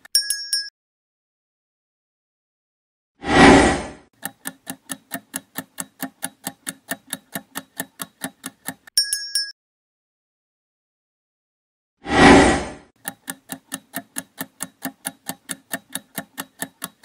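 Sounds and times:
countdown timer ticking: 4.2s - 9.0s, 13.0s - 17.0s.

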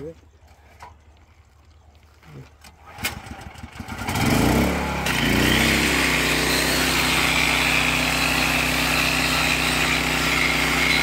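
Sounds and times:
generator engine running: 2.8s - 11.0s
rail grinder grinding metal: 3.9s - 11.0s.

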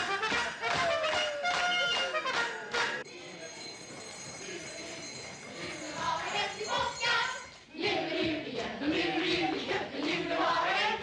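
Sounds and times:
group singing festive song: 4.2s - 11.0s.

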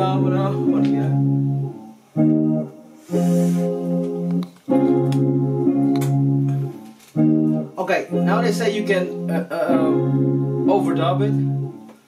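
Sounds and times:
scratchy guitar strum: 0.0s - 11.9s
electric guitar sustained chords: 0.0s - 12.0s.

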